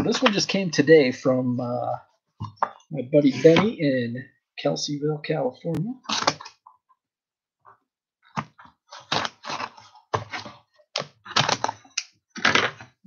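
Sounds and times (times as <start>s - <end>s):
cardboard package rustling and scraping: 8.5s - 11.8s.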